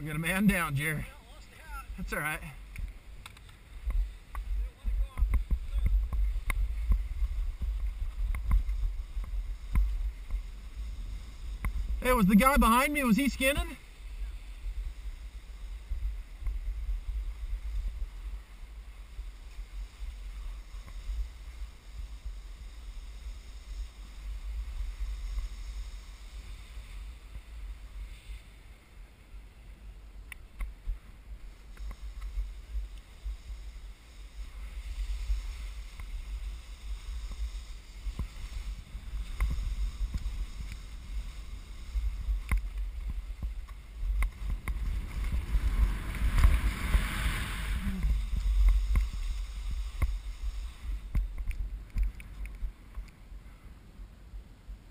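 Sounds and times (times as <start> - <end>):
wind buffeting microphone: 0.0 - 28.0, 30.7 - 53.0
skis swishing through snow: 0.3 - 30.0, 30.7 - 51.9
faint clicks: 2.6 - 4.5, 51.1 - 53.2.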